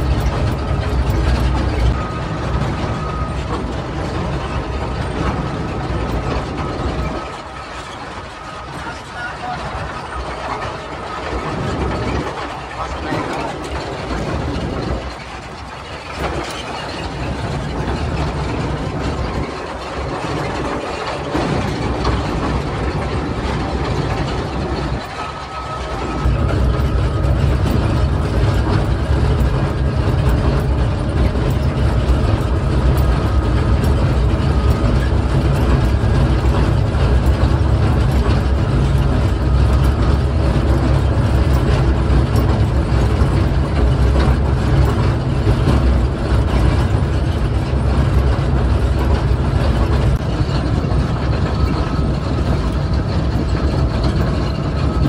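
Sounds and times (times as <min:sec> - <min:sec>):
diesel locomotive engine drone: 0:00.0 - 0:55.0.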